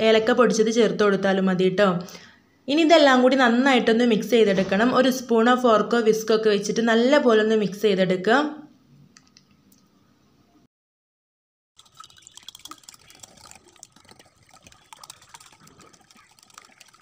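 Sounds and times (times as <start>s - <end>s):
liquid sloshing: 11.8s - 17.0s.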